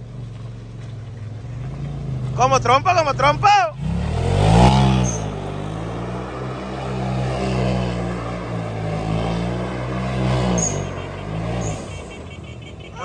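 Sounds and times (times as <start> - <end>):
vehicle engine revving high: 1.6 - 13.0.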